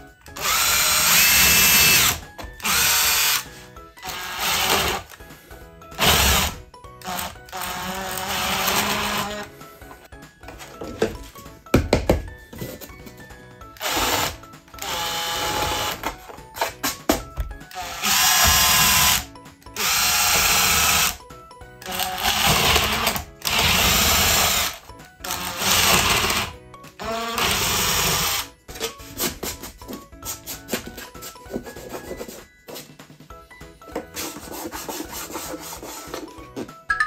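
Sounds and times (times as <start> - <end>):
faint background music: 0.0 - 37.0
cordless drill boring into wood: 0.3 - 5.1, 6.0 - 9.5, 13.8 - 16.0, 17.8 - 21.2, 21.8 - 28.5.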